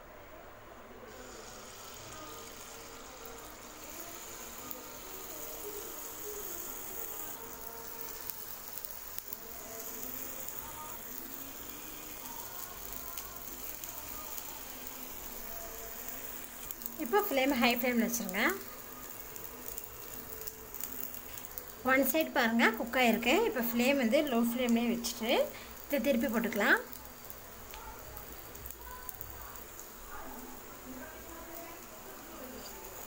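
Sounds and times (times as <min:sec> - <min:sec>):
batter sizzling in hot oil: 0:01.1 - 0:33.0.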